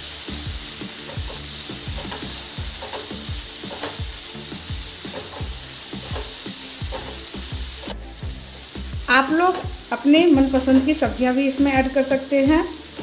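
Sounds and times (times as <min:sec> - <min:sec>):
vegetables sizzling in hot oil: 0:00.0 - 0:13.0
spatula scraping a pan: 0:00.8 - 0:08.3.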